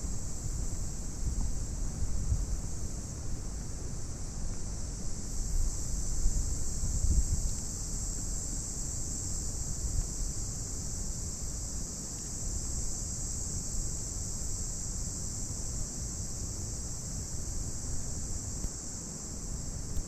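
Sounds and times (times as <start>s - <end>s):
wind rumble on microphone: 0.0s - 11.7s
insects chirring: 0.0s - 20.0s.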